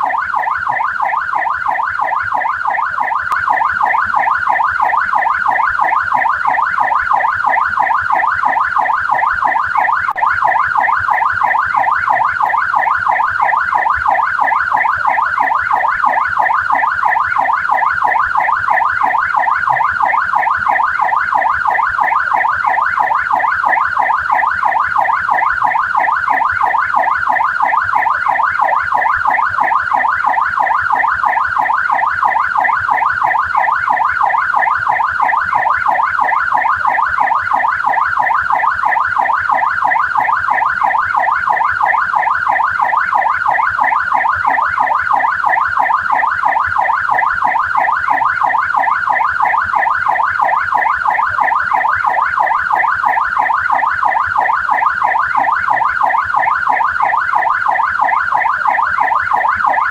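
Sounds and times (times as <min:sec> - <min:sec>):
police siren yelping: 0:00.0 - 0:59.9.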